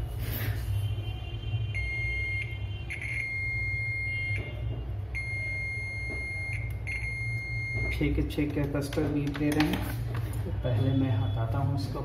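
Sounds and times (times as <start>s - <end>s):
multimeter continuity beep: 1.8s - 8.3s.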